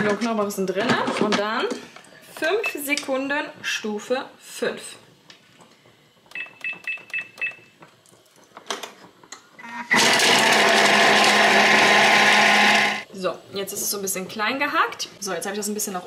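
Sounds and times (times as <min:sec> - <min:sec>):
food processor motor whirring: 0:09.6 - 0:13.1.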